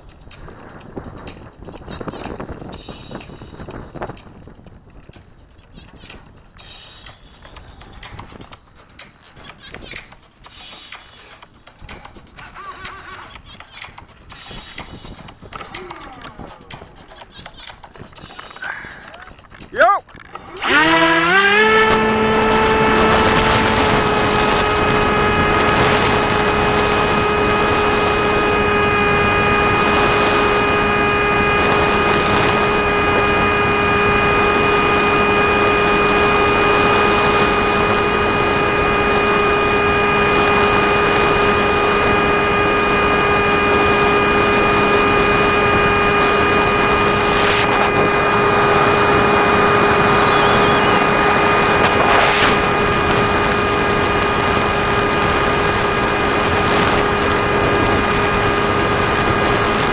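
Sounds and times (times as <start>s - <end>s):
wind rush on microphone: 0.0s - 6.7s, 17.9s - 59.9s
electric motor and propeller whine: 20.2s - 59.9s.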